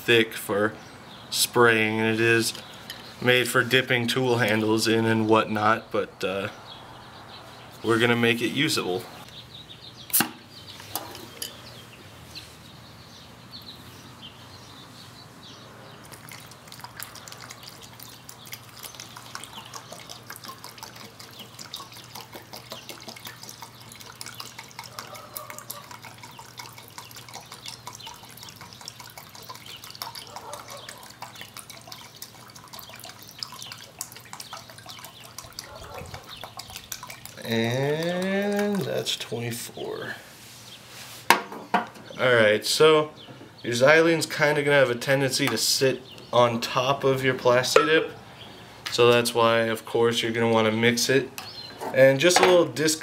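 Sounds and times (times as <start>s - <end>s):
liquid trickling and splashing: 15.9s - 39.9s.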